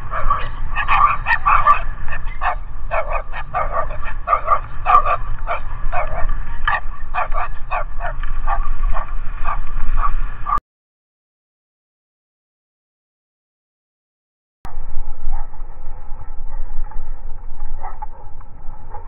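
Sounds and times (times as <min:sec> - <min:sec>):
dogs barking: 0:00.0 - 0:10.6, 0:15.3 - 0:19.0
steady low rumble: 0:00.0 - 0:10.6, 0:14.7 - 0:19.0.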